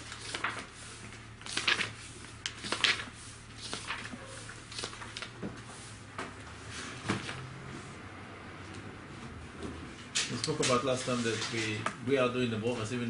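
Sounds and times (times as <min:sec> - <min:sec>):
paper rustling: 0:00.0 - 0:06.0, 0:10.2 - 0:11.9
book pages being handled: 0:00.0 - 0:07.5, 0:09.2 - 0:12.0
low electrical hum: 0:00.0 - 0:13.0.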